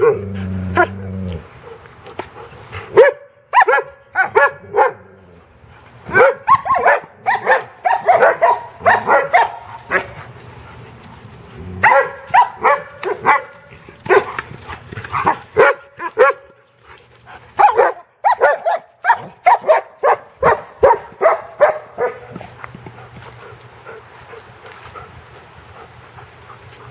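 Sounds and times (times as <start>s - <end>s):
dog barking excitedly: 2.9s - 5.1s, 6.1s - 10.2s, 11.8s - 14.5s, 15.1s - 16.6s, 17.5s - 22.5s.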